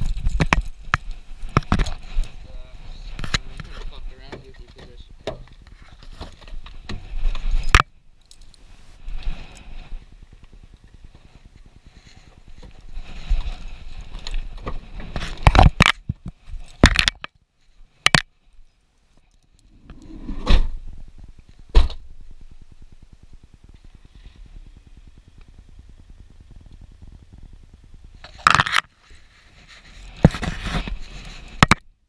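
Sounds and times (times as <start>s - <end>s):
low steady hum: 0.0s - 32.0s
camera handling knocks and scrapes: 0.1s - 2.0s, 28.3s - 28.9s, 30.1s - 31.8s.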